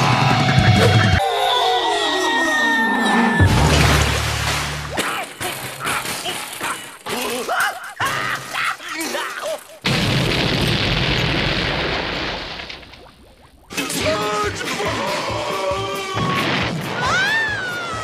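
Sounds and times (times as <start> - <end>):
cartoon sliding pitch sounds: 0.8 - 5.0
cartoon explosion rumbling: 3.4 - 6.6, 9.8 - 13.8.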